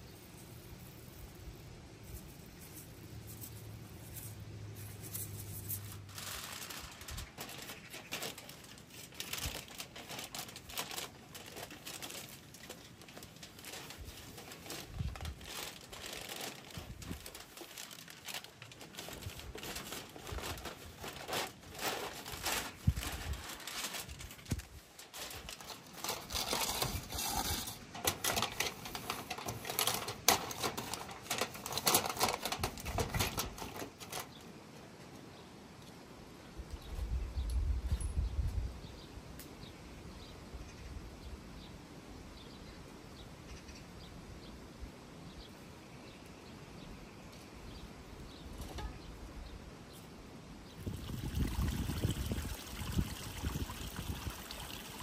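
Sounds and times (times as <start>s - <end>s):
foil and paper crinkling: 4.9s - 34.4s.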